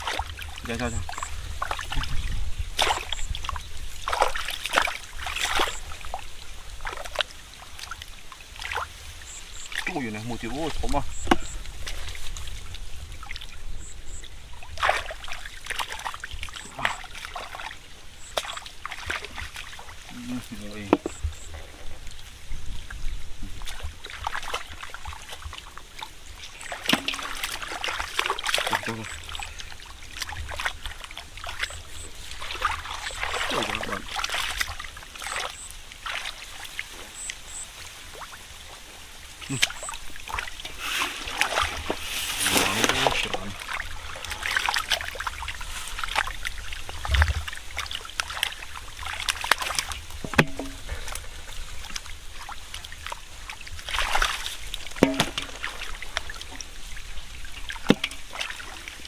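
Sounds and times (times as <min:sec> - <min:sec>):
hands splashing in muddy water: 0:00.0 - 0:08.9, 0:14.6 - 0:21.2, 0:23.4 - 0:36.9, 0:39.4 - 0:59.0
trickling water: 0:00.0 - 0:59.0
sharp loud splash: 0:02.7 - 0:03.3, 0:26.7 - 0:29.2, 0:53.9 - 0:56.1.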